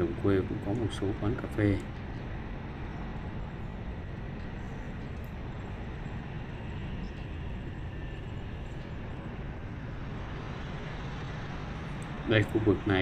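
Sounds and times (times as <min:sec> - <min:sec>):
engine and tyre noise: 0:00.0 - 0:13.0
wind rumble on microphone: 0:00.0 - 0:13.0.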